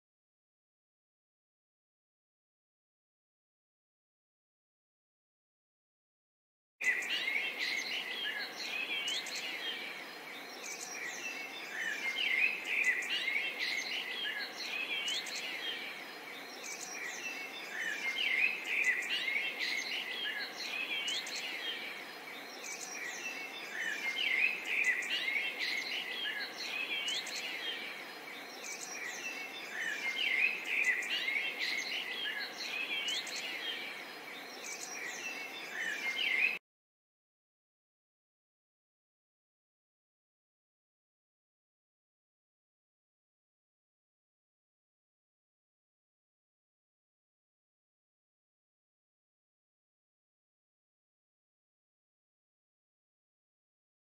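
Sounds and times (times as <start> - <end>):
small birds chirping: 6.8 - 36.6.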